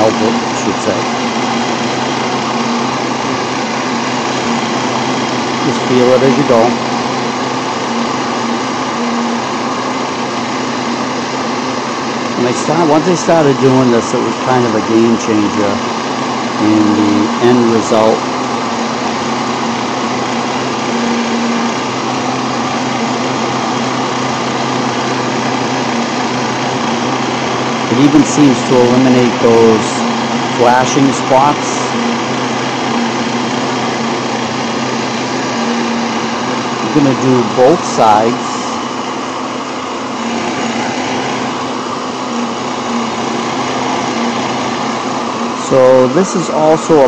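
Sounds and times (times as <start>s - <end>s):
heat gun running: 0.0s - 47.0s
low motor hum: 0.0s - 47.0s.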